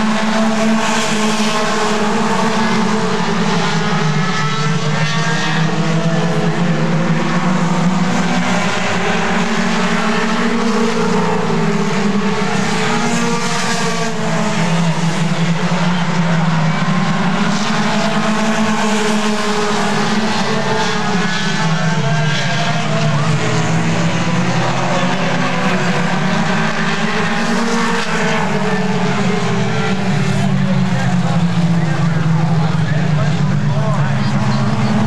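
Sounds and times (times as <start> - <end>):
race car engines passing: 0.0 - 35.0.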